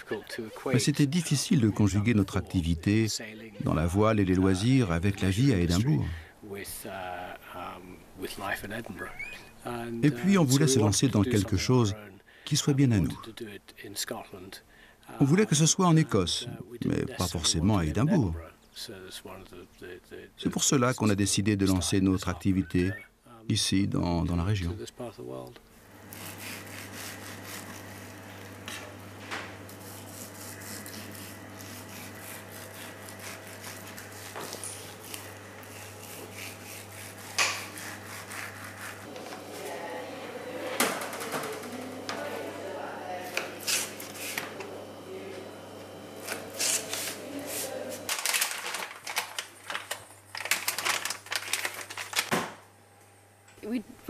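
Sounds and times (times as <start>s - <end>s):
irregular scraping and rubbing: 29.7s - 39.5s
objects clattering and rustling: 48.0s - 52.5s.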